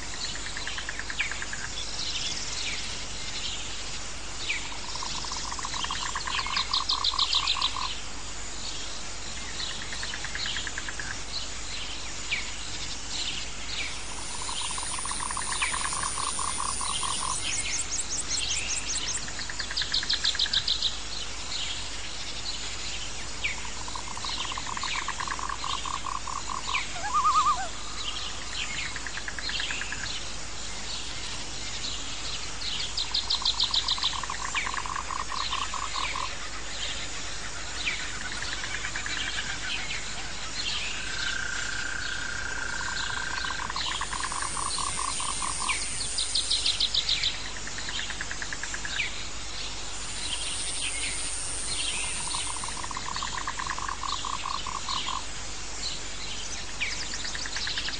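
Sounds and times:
frogs calling: 0.0s - 3.4s, 4.5s - 8.1s, 9.3s - 21.1s, 23.3s - 31.4s, 32.7s - 57.9s
insects chirping: 0.0s - 57.9s
birds chirping: 12.8s - 30.2s, 48.8s - 55.2s.

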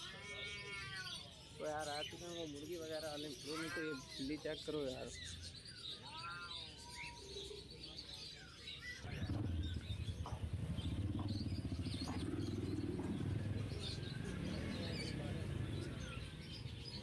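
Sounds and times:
birds chirping: 0.0s - 17.0s
low rumble: 9.0s - 16.3s.

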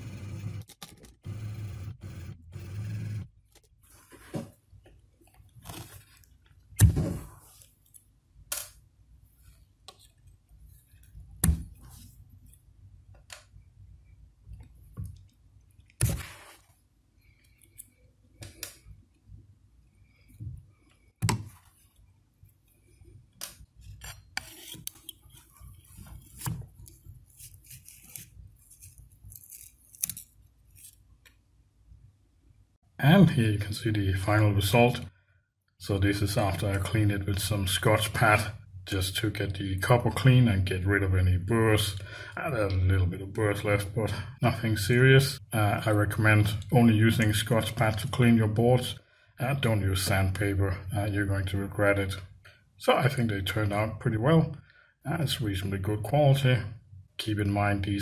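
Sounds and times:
pliers scraping: 23.9s - 31.0s.

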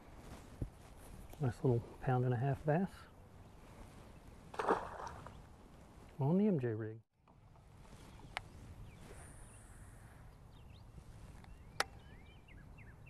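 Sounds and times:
bird chirping: 10.3s - 13.0s.

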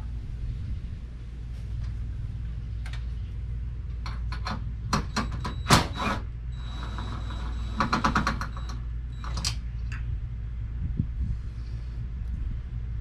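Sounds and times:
steady low rumble: 0.0s - 5.2s, 8.5s - 13.0s
thin steady whine: 0.0s - 13.0s.

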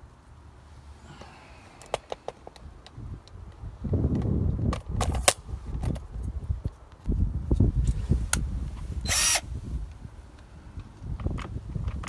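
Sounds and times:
cordless drill driving screw: 9.1s - 9.4s.

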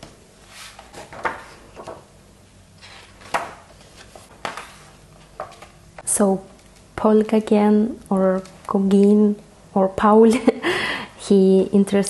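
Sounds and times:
book pages turning: 2.8s - 5.8s.

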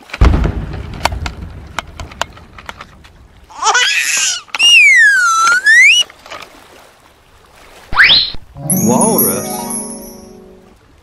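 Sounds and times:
short warbling jingle: 8.6s - 10.7s.

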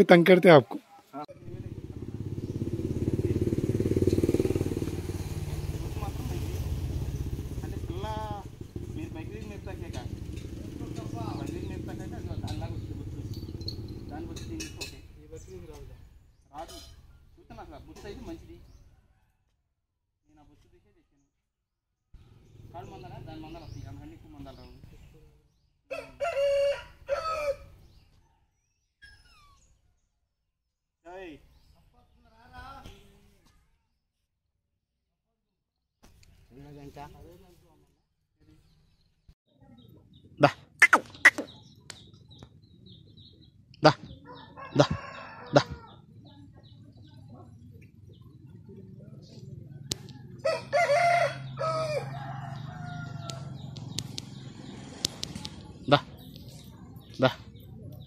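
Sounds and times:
rooster crowing: 25.9s - 27.8s, 44.2s - 46.0s, 50.2s - 53.8s.

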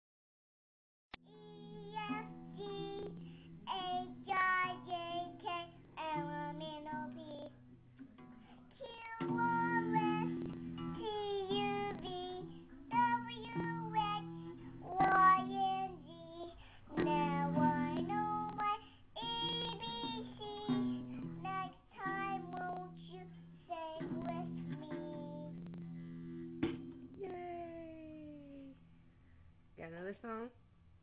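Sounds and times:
child singing: 1.2s - 7.6s, 8.7s - 25.7s
acoustic guitar strums: 16.6s - 27.2s.

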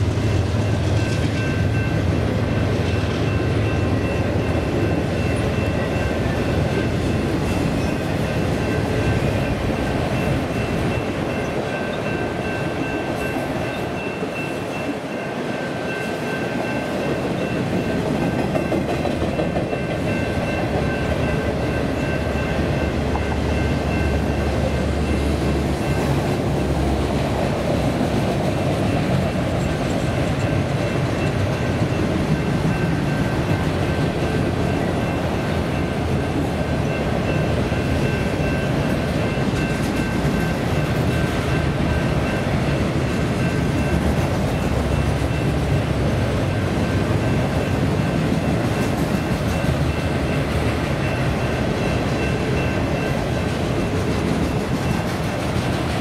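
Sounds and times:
freight train rumbling and rattling: 0.0s - 56.0s.

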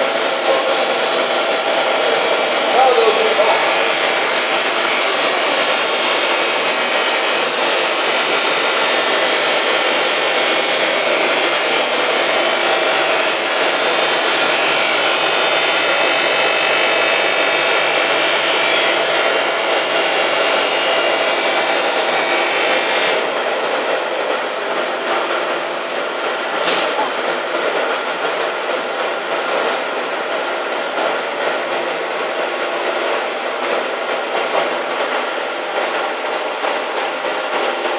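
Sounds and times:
glass edging machine grinding: 0.0s - 37.9s
sharp click: 26.6s - 27.0s.

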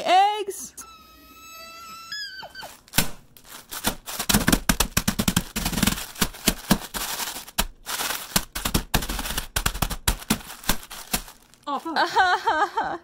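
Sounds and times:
crackers crunching in plastic wrapper: 2.6s - 11.9s.

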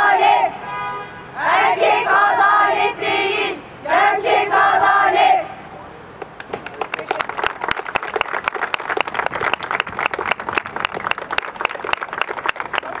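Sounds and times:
crowd clapping: 6.2s - 13.0s.

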